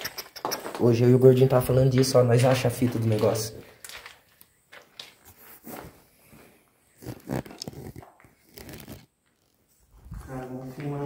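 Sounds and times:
small objects being handled: 1.6s - 6.4s.

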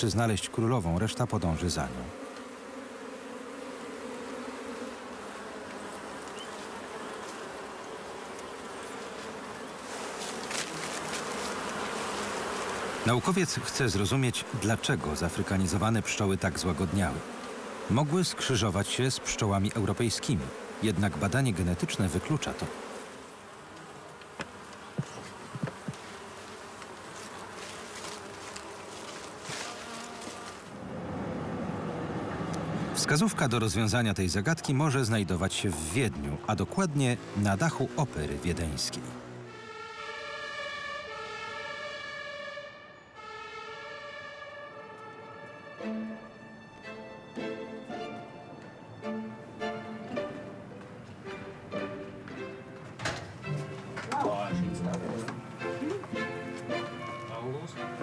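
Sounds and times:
bees buzzing: 0.0s - 58.0s
light knocks on wooden boxes: 24.4s - 26.0s.

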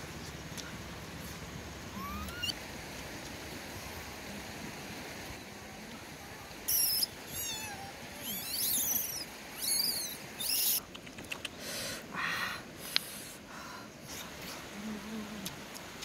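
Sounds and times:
young monkey squeaking: 1.9s - 2.6s, 6.7s - 11.5s.

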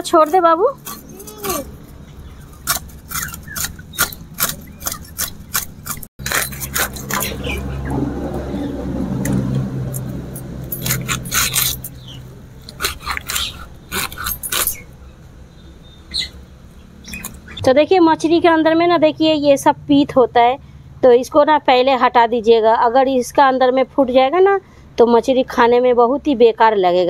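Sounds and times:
blade scraping fish scales: 0.8s - 7.9s, 10.0s - 14.9s.

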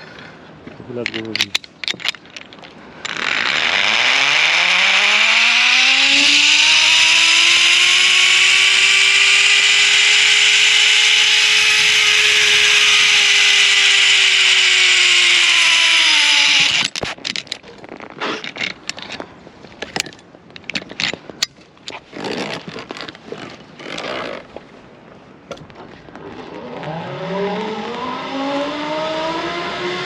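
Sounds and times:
zip-line pulleys whining: 3.0s - 17.0s, 26.4s - 30.0s.

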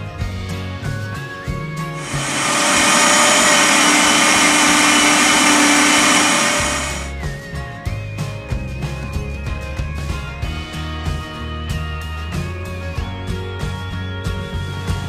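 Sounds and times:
blender whirring: 2.0s - 7.2s.

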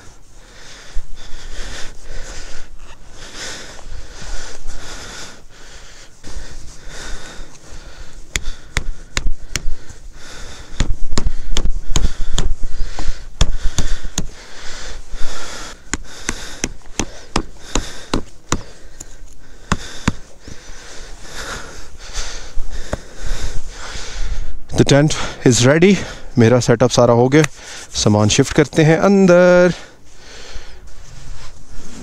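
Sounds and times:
tent poles clicking and knocking: 8.3s - 10.0s, 10.6s - 14.4s, 15.8s - 20.6s.

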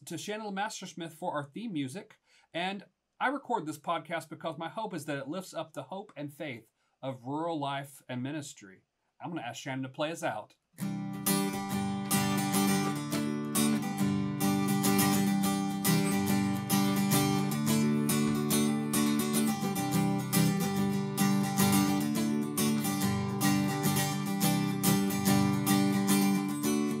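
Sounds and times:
acoustic guitar strumming: 10.8s - 27.0s.

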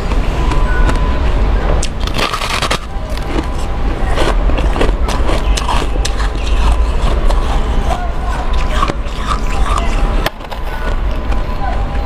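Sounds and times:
steady low rumble: 0.0s - 12.0s
ice crunching between teeth: 1.8s - 11.0s.

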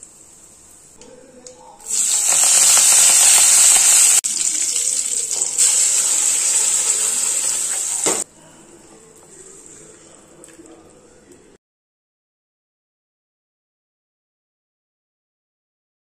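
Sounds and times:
chutney hissing in hot oil: 1.9s - 8.2s
leaves sizzling in hot oil: 1.9s - 8.2s.

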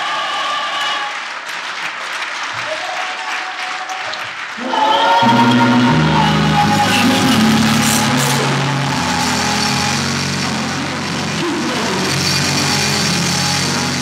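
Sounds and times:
band sustaining low chord: 5.2s - 14.0s.

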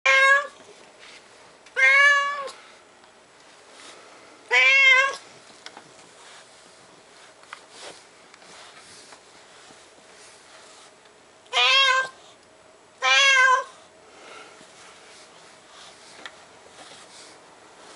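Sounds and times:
cat meowing: 0.1s - 0.6s, 1.8s - 2.6s, 4.5s - 5.2s, 11.5s - 12.2s, 13.0s - 13.7s.

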